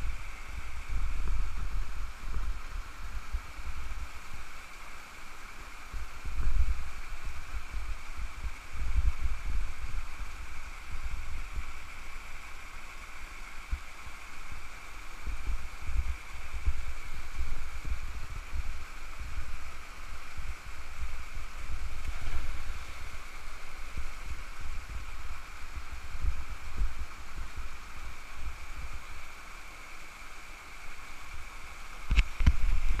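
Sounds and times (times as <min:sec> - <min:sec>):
wind buffeting on microphone: 0:00.0 - 0:04.1, 0:05.9 - 0:11.8, 0:15.2 - 0:29.1, 0:32.1 - 0:33.0
cascade pouring into rock pool: 0:00.0 - 0:33.0
small waterfall rushing: 0:00.0 - 0:33.0.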